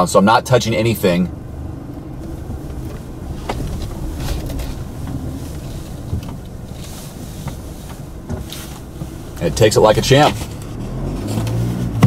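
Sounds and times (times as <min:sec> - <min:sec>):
truck low rumble: 0:00.0 - 0:12.0.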